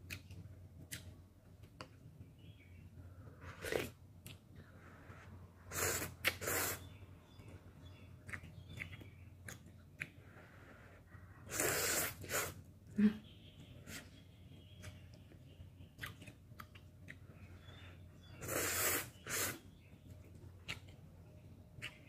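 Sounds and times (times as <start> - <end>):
loud noodle slurps: 5.7 - 6.9, 11.5 - 12.6, 18.4 - 19.6
wet chewing clicks: 5.7 - 10.4, 14.8 - 22.0.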